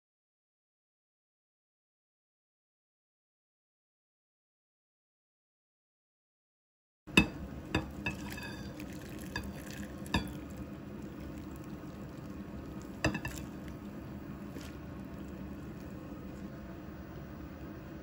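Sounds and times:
pot clinking against glass bowl: 7.1s - 10.6s, 11.3s - 13.8s
broth pouring and sloshing: 7.7s - 16.5s.

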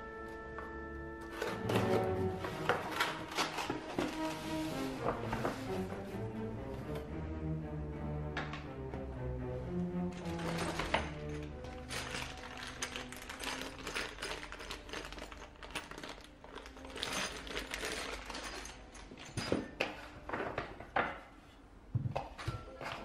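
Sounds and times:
plastic bag crinkling: 1.4s - 5.3s, 10.2s - 19.2s
metal hardware clinking: 10.2s - 20.2s.

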